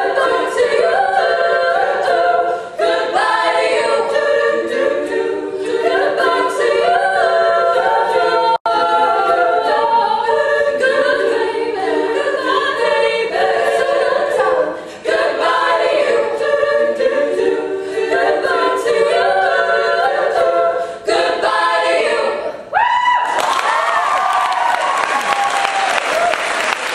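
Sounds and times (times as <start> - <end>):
women singing a cappella: 0.0 - 23.8.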